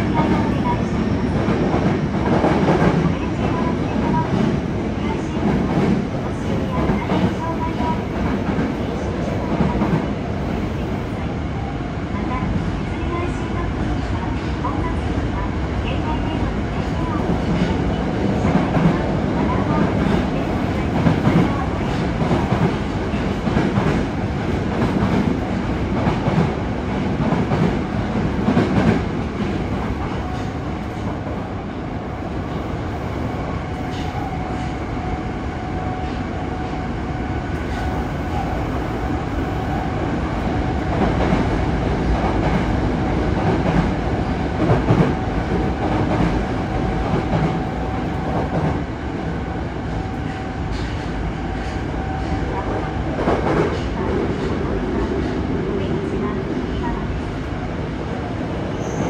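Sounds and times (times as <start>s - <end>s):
train wheels rumbling on rail: 0.0s - 59.0s
rail-joint clicks: 50.2s - 52.4s.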